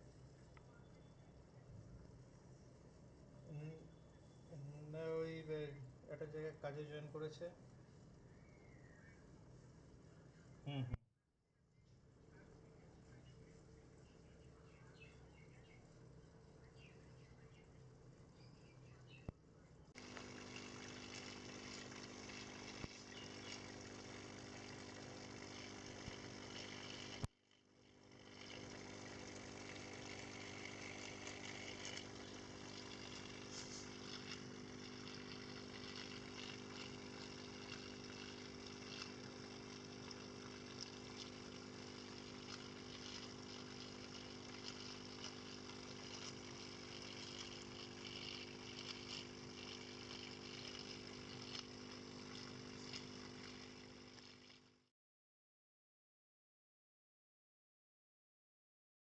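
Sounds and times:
air pump humming: 0:00.0 - 0:00.6, 0:19.9 - 0:54.8
air bubbling through filter: 0:20.0 - 0:54.8.

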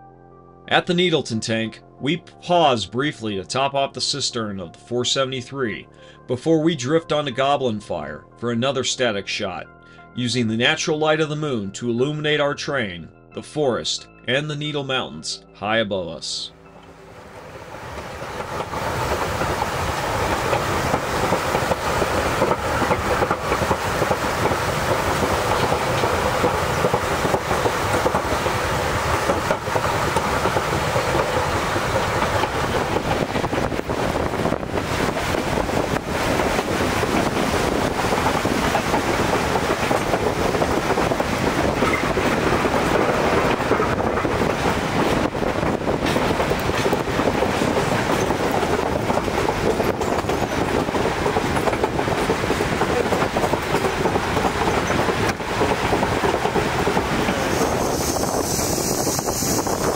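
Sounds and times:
train cars clattering on track: 0:17.5 - 0:59.9.

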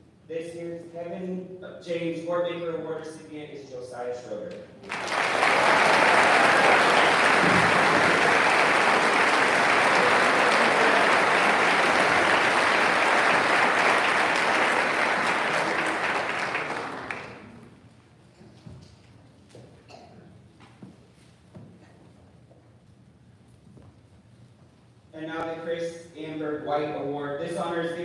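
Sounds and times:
audience applauding: 0:04.8 - 0:17.8.

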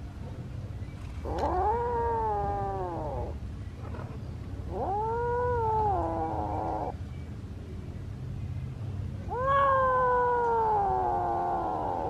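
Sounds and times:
kitten meowing: 0:01.3 - 0:03.3, 0:04.7 - 0:06.9, 0:09.3 - 0:12.0.

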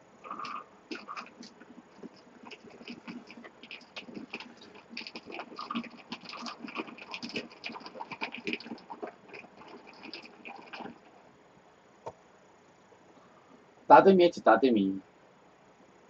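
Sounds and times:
chewing mouth sounds: 0:00.2 - 0:11.2
sipping: 0:00.2 - 0:11.3.

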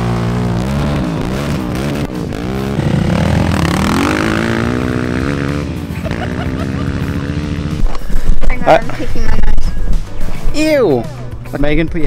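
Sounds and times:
quad bike engines revving: 0:00.0 - 0:09.5.

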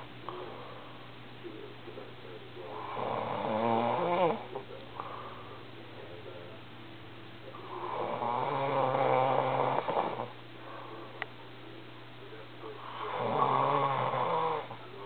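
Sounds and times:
man snoring: 0:02.6 - 0:04.5, 0:07.5 - 0:10.4, 0:12.8 - 0:14.8.

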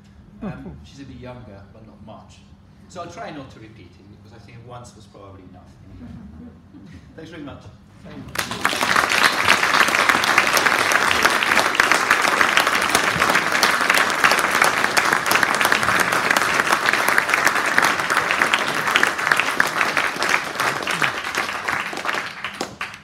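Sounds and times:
audience applauding: 0:08.3 - 0:23.0.

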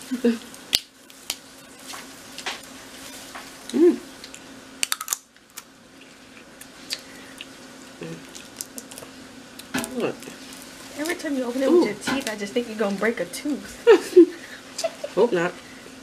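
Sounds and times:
person humming: 0:03.7 - 0:04.1, 0:08.0 - 0:08.3
crab shells cracking: 0:04.2 - 0:05.7, 0:08.2 - 0:11.2.

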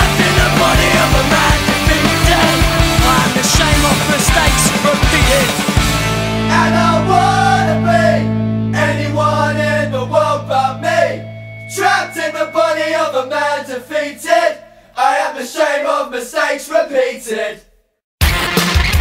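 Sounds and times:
singing over sustained low notes: 0:00.0 - 0:04.8, 0:06.4 - 0:14.6
music with driving drum beat: 0:00.0 - 0:06.5, 0:18.2 - 0:19.0.

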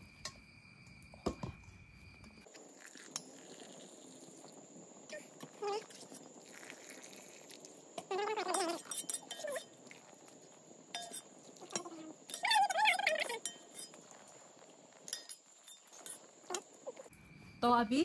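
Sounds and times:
metal spoon clinking on pots: 0:08.4 - 0:09.8, 0:10.9 - 0:14.1, 0:15.0 - 0:16.7.

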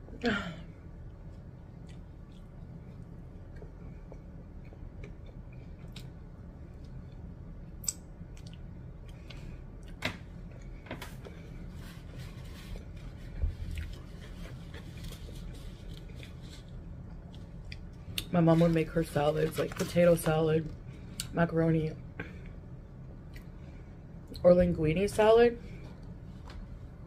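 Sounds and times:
steady low hum: 0:00.0 - 0:27.0
person chewing food: 0:00.9 - 0:11.3, 0:12.0 - 0:18.3, 0:23.1 - 0:23.6.

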